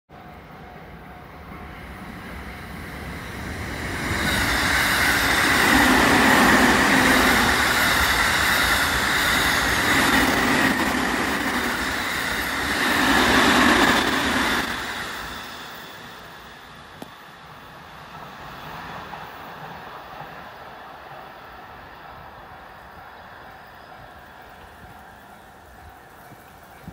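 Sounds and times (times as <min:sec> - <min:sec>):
electric train passing at speed: 0:00.1 - 0:26.9.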